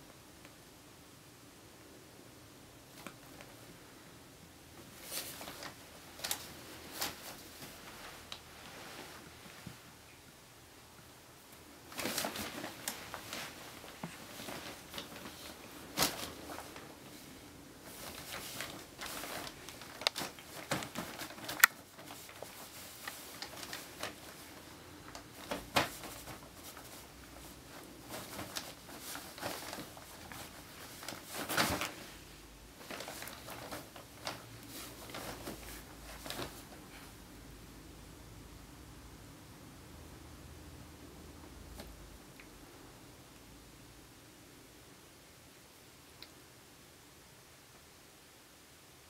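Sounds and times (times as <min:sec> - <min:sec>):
cats scuffling in fabric carrier: 0:04.8 - 0:09.8, 0:11.9 - 0:37.2.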